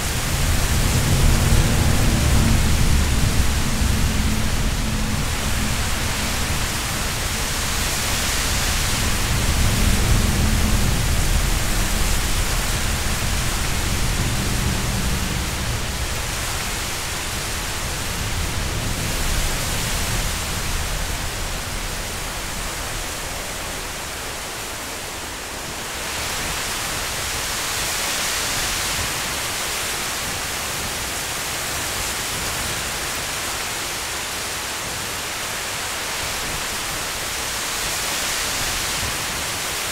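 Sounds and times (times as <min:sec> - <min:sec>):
heavy low rumble: 0:00.0 - 0:27.0
wind rushing through trees: 0:00.0 - 0:39.9.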